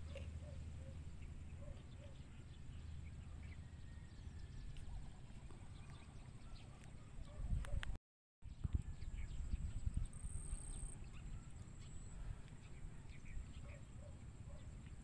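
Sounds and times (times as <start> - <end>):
wind on microphone: 4.8 - 13.7.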